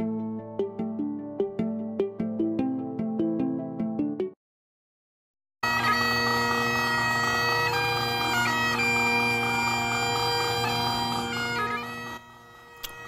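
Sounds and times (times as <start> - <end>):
bagpipes playing a melody: 5.6 - 13.0.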